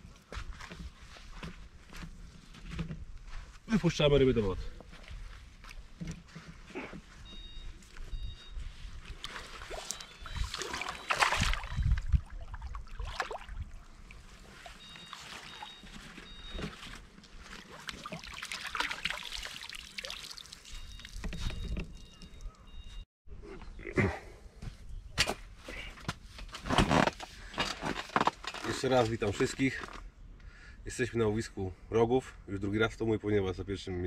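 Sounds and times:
water splashing and sloshing: 8.7s - 22.6s
water trickling: 9.2s - 16.0s, 17.4s - 22.6s.

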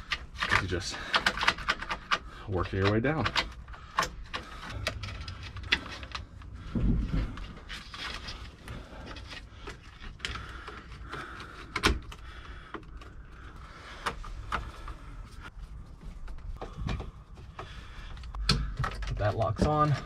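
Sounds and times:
clicks and knocks of plastic and metal: 0.0s - 20.0s.

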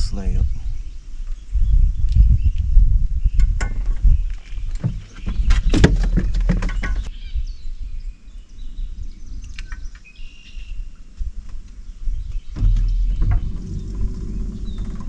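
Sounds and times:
bird chirps: 3.2s - 11.0s, 11.7s - 15.0s
gear knocking and rattling in boat: 4.6s - 7.1s, 12.5s - 15.0s.

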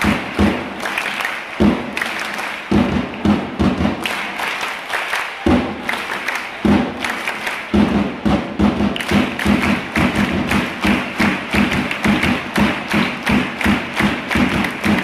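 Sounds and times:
big drum beating: 0.0s - 0.8s, 1.6s - 2.0s, 2.7s - 4.1s, 5.5s - 5.9s, 6.6s - 7.1s, 7.7s - 15.0s.

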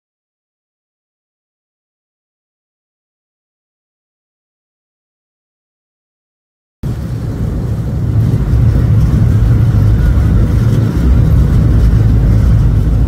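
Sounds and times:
ship engines rumbling: 6.8s - 13.0s.

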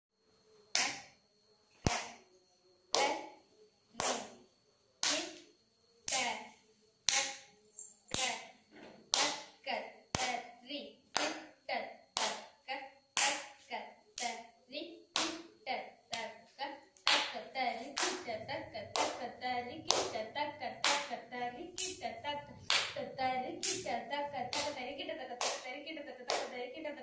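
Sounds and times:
hand claps and palm taps: 25.4s - 25.6s, 26.3s - 26.5s.

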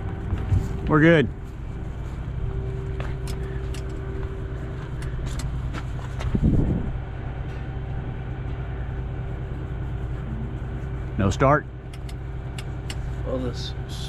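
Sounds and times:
engine idling: 0.0s - 14.0s
sharp clicks: 11.9s - 13.0s.

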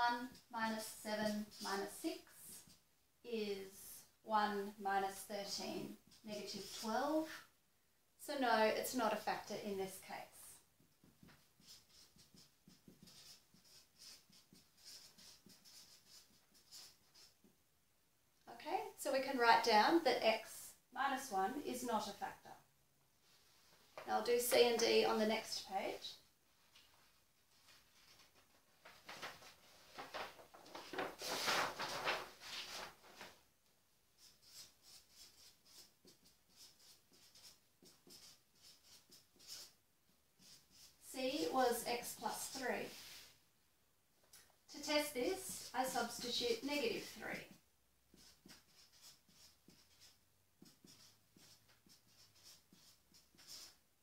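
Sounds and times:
felt-tip marker writing: 11.0s - 17.4s, 34.2s - 39.8s, 40.4s - 41.0s, 48.1s - 53.8s
paper sheet rustling: 26.7s - 33.4s.

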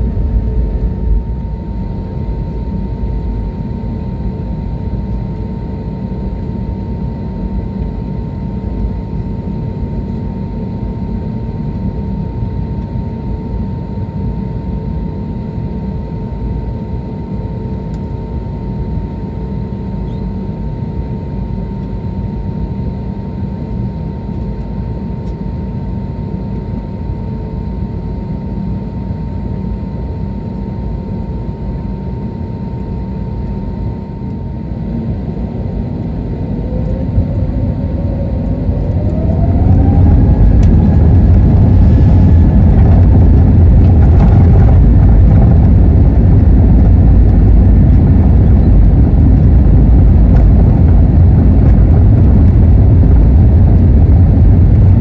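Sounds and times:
jet engines humming: 0.0s - 16.9s, 28.5s - 55.0s
jet engines at takeoff power: 0.0s - 55.0s
jet engines spooling up: 34.3s - 55.0s.

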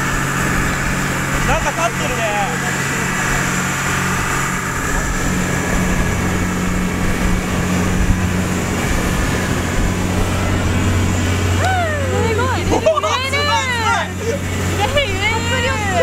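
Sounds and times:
boat engine humming: 0.0s - 16.0s
wind and water rushing: 0.0s - 16.0s.

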